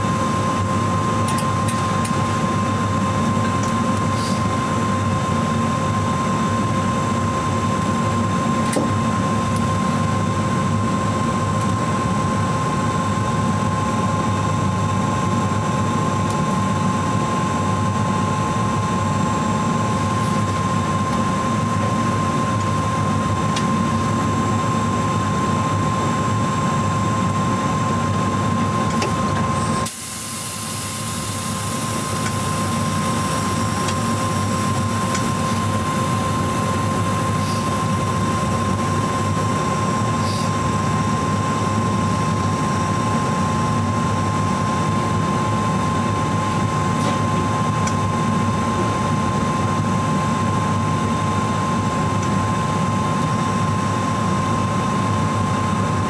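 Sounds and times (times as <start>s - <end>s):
bright hiss: 29.6s - 35.0s.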